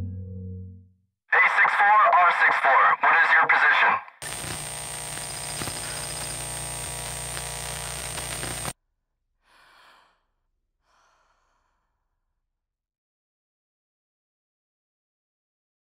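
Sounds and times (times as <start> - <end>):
thin high whine: 4.2 - 8.8.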